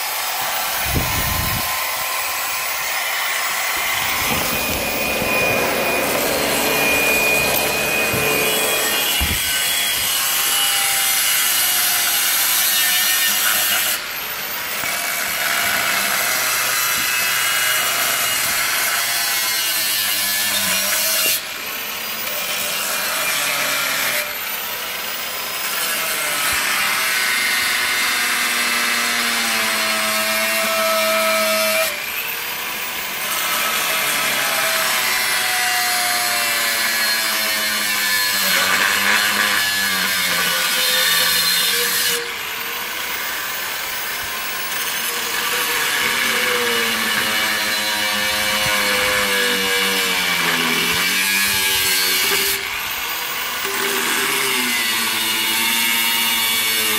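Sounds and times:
angle grinder cutting steel: 0.0 - 56.9.

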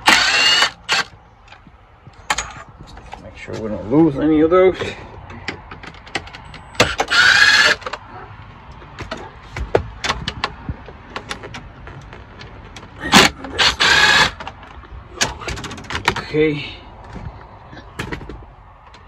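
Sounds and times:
cordless drill whirring: 0.0 - 1.1, 6.8 - 7.9, 13.2 - 14.4.

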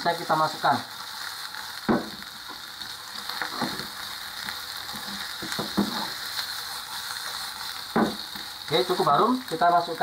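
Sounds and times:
vegetables sizzling in oil: 0.0 - 10.0
wooden spatula scraping a pan: 4.9 - 8.5.

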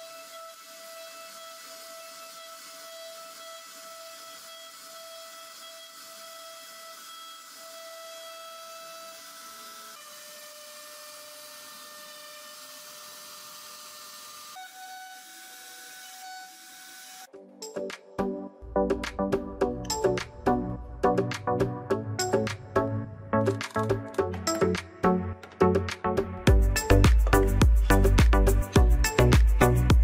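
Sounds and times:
hiss of bit cutting wood: 0.0 - 17.3
router spindle whining: 0.0 - 17.3.

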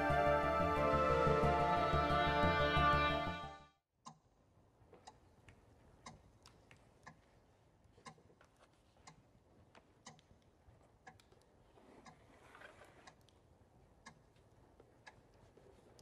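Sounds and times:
music: 0.0 - 3.8.

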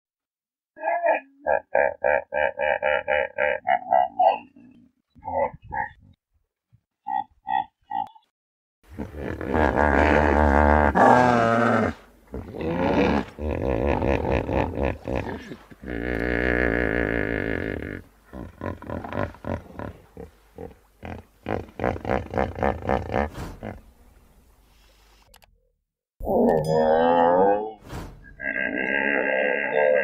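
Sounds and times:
hippopotamus grunts: 8.9 - 23.9.

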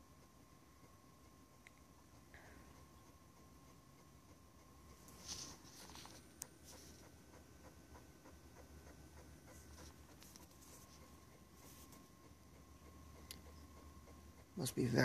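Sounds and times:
disk drive ticking: 0.0 - 5.1, 6.4 - 15.0.

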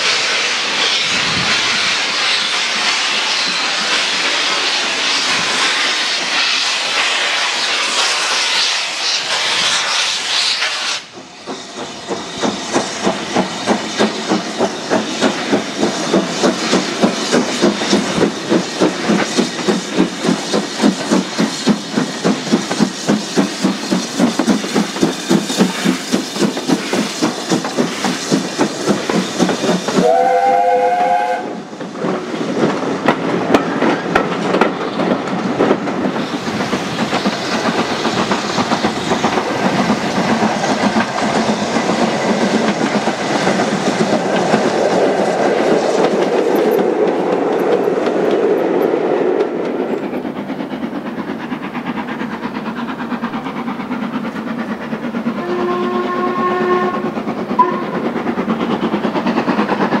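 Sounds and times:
steam locomotive exhaust beats: 0.0 - 60.0
steam whistle: 30.0 - 31.6, 55.4 - 57.0, 57.6 - 58.0.

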